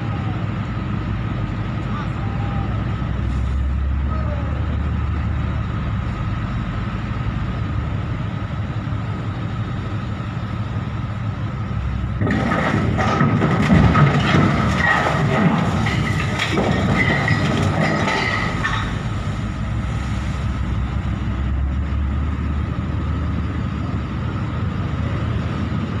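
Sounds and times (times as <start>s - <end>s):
steady low rumble: 0.0s - 26.0s
ship hull grinding against dock: 12.2s - 19.9s.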